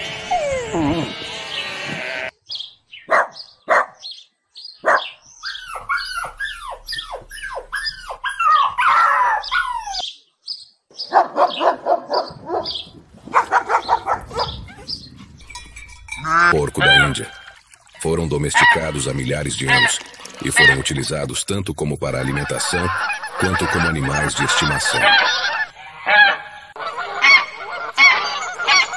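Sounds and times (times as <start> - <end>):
dogs barking: 3.0 - 4.1, 4.8 - 10.0, 11.0 - 17.6, 18.4 - 21.1, 22.2 - 28.9.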